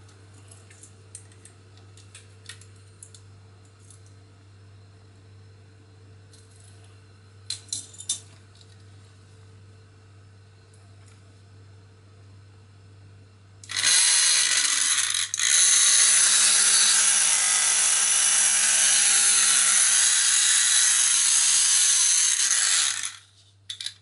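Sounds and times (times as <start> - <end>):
rotary tool whining: 13.7 - 23.9.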